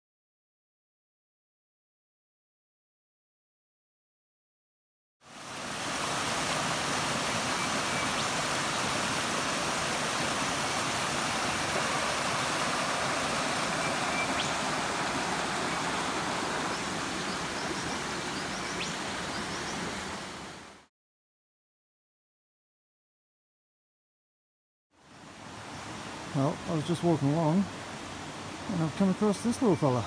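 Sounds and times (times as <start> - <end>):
creek water rushing over rocks: 5.2 - 20.9, 25.2 - 30.0.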